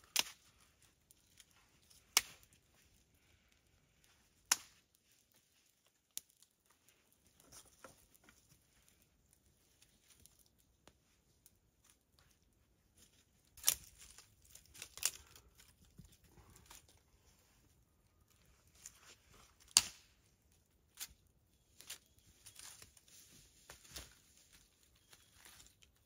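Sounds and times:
twigs crackling: 0.0s - 26.0s
sharp twig snaps: 0.1s - 0.5s, 2.1s - 2.5s, 4.5s - 4.8s, 19.7s - 20.1s.

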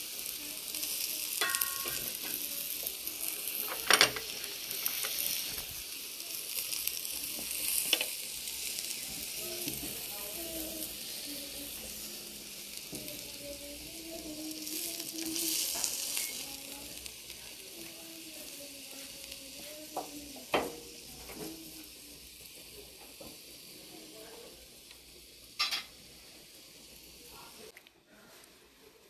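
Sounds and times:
steak sizzling on griddle: 0.0s - 27.7s.

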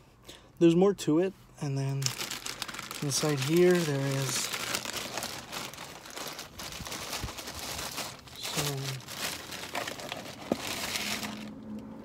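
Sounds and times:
plastic bag rustling: 2.0s - 11.6s.

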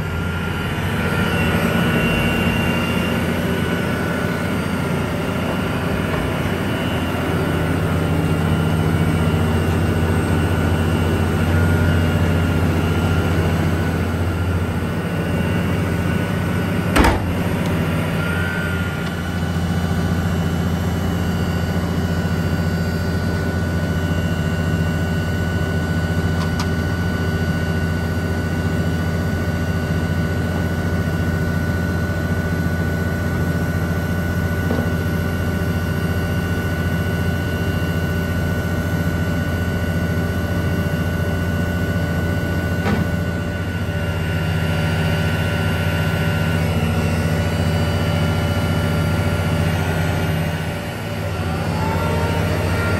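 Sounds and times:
diesel engine running: 0.0s - 52.9s
sharp knock: 17.0s - 17.3s.

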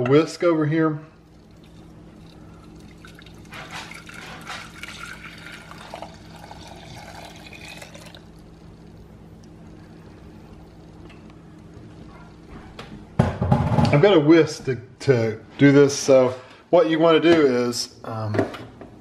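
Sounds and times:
liquid pouring into saucepan: 1.2s - 8.8s.

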